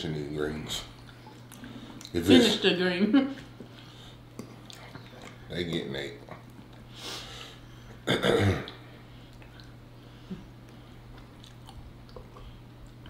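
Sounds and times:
steady low hum: 0:00.0 - 0:13.0
faint chewing: 0:00.9 - 0:02.2, 0:03.4 - 0:06.9, 0:08.7 - 0:13.0
throat clearing: 0:08.0 - 0:08.8.

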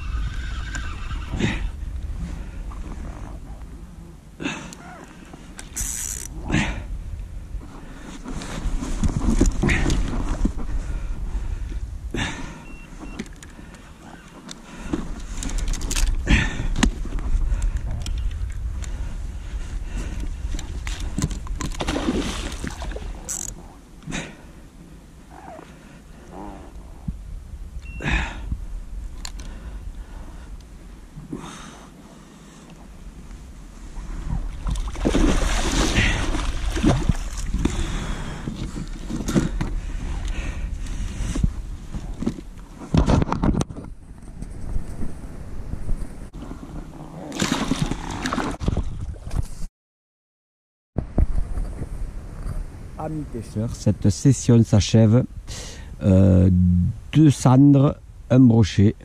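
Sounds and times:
steady low rumble: 0:01.3 - 0:04.5, 0:06.3 - 0:08.1, 0:55.2 - 0:59.0
fish thrashing in water: 0:20.9 - 0:23.3, 0:34.6 - 0:37.8, 0:47.3 - 0:49.2.

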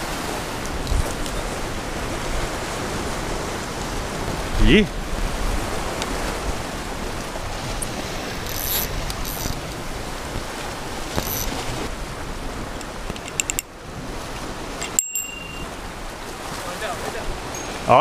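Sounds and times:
surf washing on rocks: 0:00.0 - 0:18.0
fishing reel clicks: 0:08.4 - 0:09.6, 0:11.2 - 0:11.6, 0:13.1 - 0:13.6.

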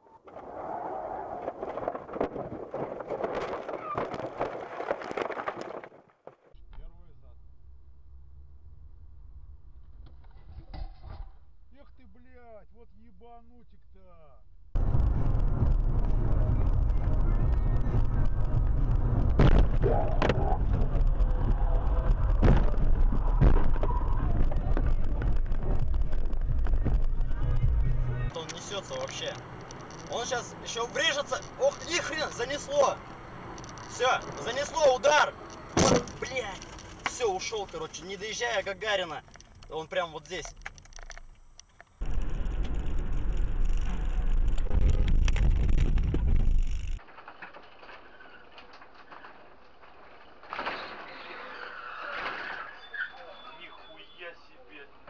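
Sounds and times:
road rumble: 0:06.5 - 0:55.0
wind noise: 0:14.8 - 0:28.3, 0:41.9 - 0:47.0.

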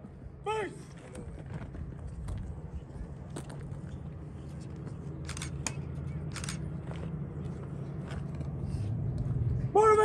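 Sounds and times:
steady low rumble: 0:00.0 - 0:09.9.

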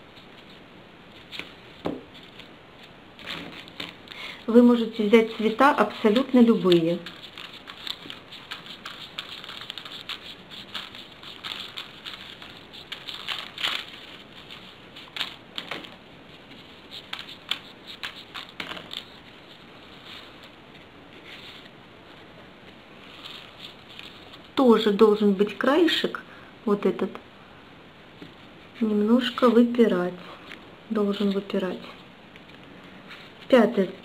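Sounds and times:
paper rustling and clicking: 0:01.2 - 0:04.2, 0:05.2 - 0:19.3.

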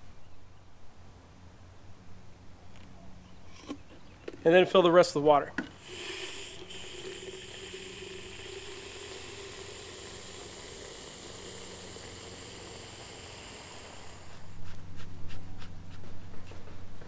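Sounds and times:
water from hose filling bottle: 0:05.7 - 0:14.6.

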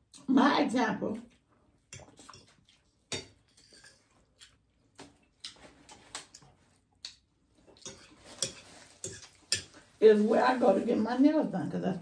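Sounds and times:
faint chewing: 0:01.2 - 0:10.0.

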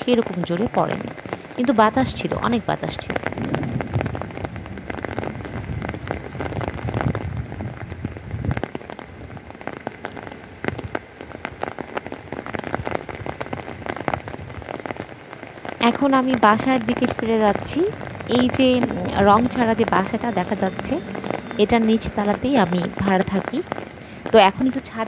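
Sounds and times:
rain pattering on umbrella: 0:00.0 - 0:25.0
wind rumbling on microphone: 0:00.0 - 0:25.0.

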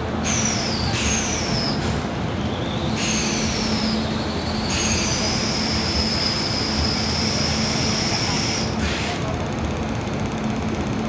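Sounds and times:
train running gear rumble: 0:00.0 - 0:11.0
train wheels squealing: 0:00.2 - 0:08.7.

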